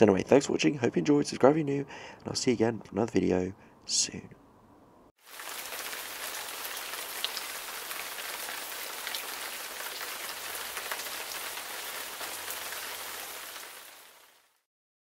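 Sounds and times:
steady rain falling: 5.2s - 14.7s.

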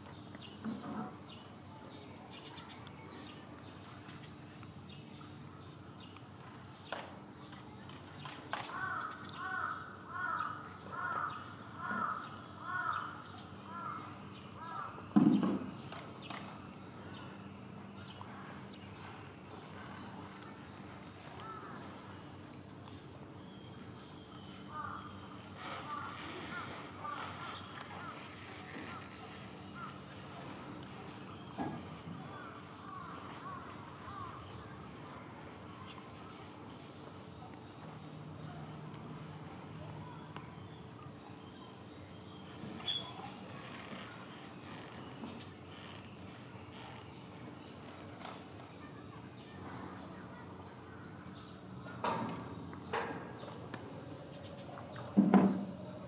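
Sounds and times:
harsh crow-like bird calls: 8.6s - 15.2s, 31.7s - 34.5s
small bird chirping: 41.8s - 47.1s.

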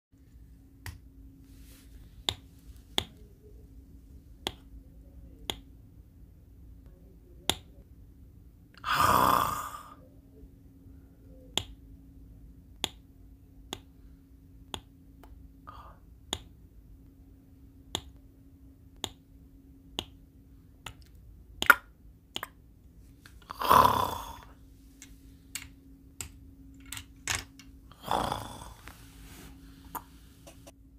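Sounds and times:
faint steady hum: 0.2s - 30.9s
plastic bricks clicking together: 25.6s - 27.7s.

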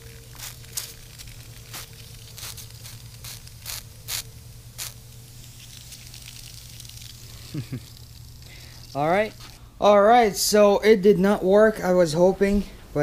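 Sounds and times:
soap bubbles crackling and popping: 0.0s - 9.6s
steady low hum: 0.0s - 13.0s.

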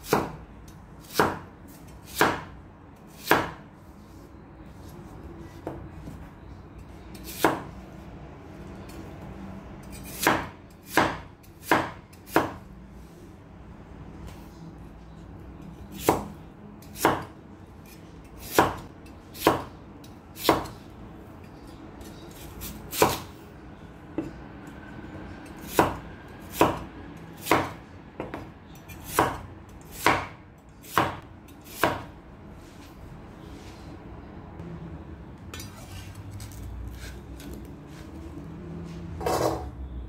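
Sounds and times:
knife cutting potatoes: 35.6s - 38.2s.

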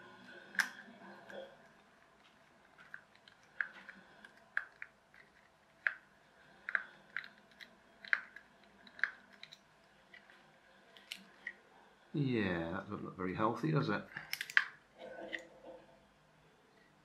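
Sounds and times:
screwdriver clicks and creaks: 2.2s - 6.0s, 6.6s - 11.6s, 14.2s - 15.4s.

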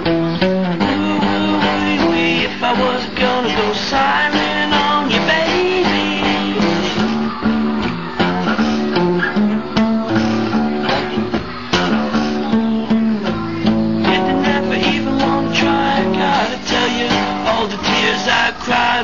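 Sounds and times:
blues guitar music: 0.0s - 19.0s.

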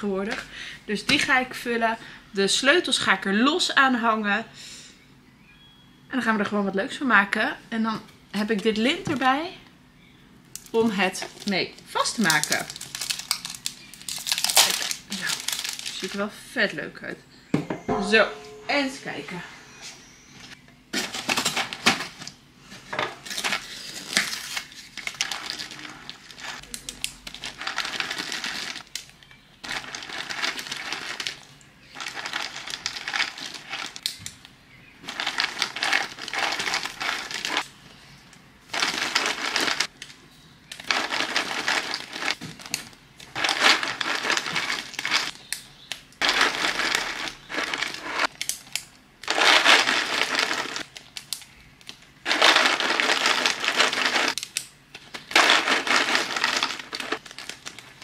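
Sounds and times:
plastic bags crinkling: 10.6s - 16.2s, 23.2s - 37.7s, 38.7s - 58.0s
snack pieces rattling into bags: 10.6s - 16.2s, 23.2s - 34.2s, 35.0s - 37.7s, 38.7s - 40.1s, 40.7s - 45.3s, 46.2s - 48.6s, 49.2s - 51.4s, 52.2s - 58.0s.

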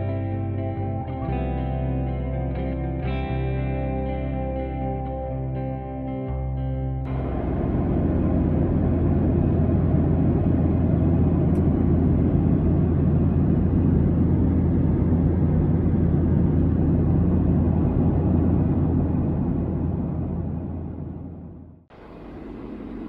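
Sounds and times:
strong low hum: 0.0s - 23.0s
airliner cabin engine rush: 7.1s - 23.0s.

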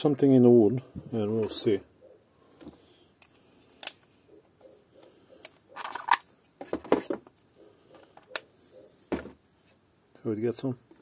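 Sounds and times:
tools clattering: 5.4s - 7.2s
metal and plastic rattling: 5.7s - 7.3s.

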